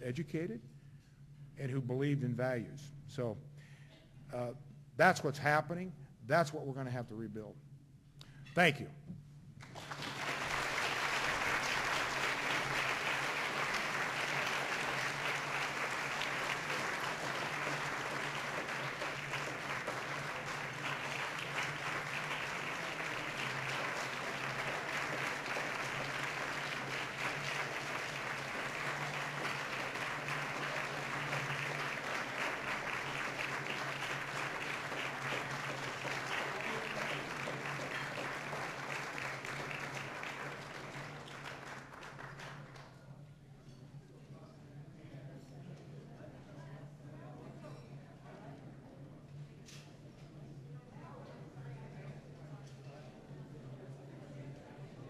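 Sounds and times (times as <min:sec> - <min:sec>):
audience applauding: 0:09.6 - 0:43.0.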